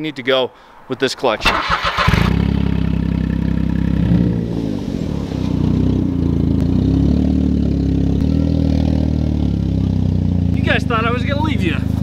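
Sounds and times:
car engine idling: 1.4s - 12.0s.

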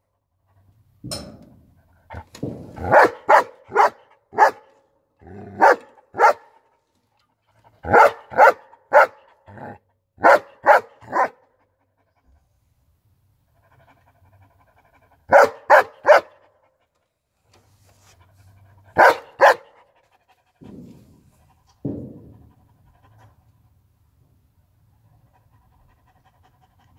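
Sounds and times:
dog barking: 2.8s - 4.7s, 5.5s - 6.6s, 7.8s - 11.4s, 15.3s - 16.5s, 19.0s - 19.9s
dog panting: 13.4s - 17.0s, 18.0s - 23.8s, 24.8s - 26.9s.

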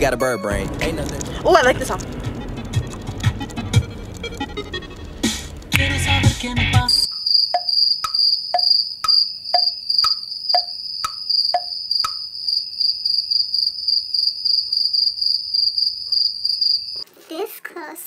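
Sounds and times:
music: 0.0s - 7.1s
crickets chirping: 1.3s - 17.0s
clock ticking: 7.5s - 12.2s.

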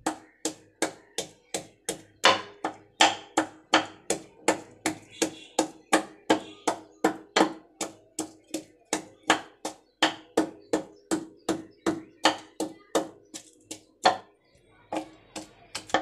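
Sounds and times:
wooden pestle pounding in mortar: 0.0s - 14.3s, 14.9s - 16.0s.

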